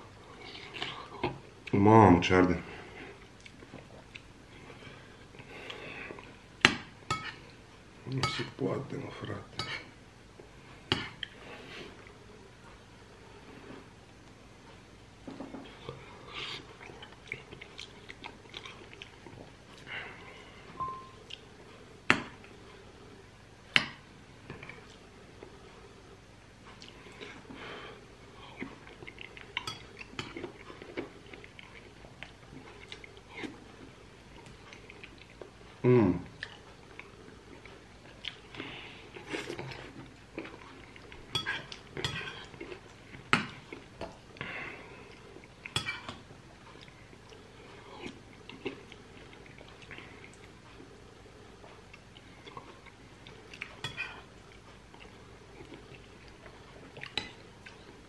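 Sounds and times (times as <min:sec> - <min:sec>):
quiet chewing: 0:02.8 - 0:06.4, 0:15.4 - 0:21.8, 0:26.6 - 0:58.0
spoon clinking against glass bowl: 0:20.8 - 0:21.2.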